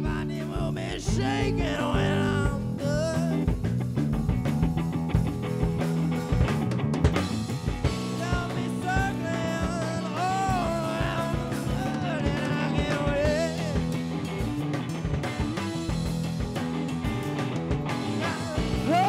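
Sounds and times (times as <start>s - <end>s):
drum kit: 0.0s - 19.0s
electric guitar: 0.0s - 19.0s.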